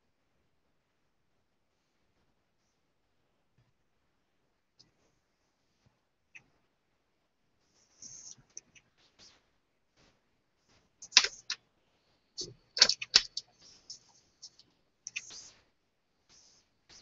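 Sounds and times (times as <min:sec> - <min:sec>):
hands and pen clicking and tapping: 0:11.0 - 0:11.6, 0:12.4 - 0:15.5.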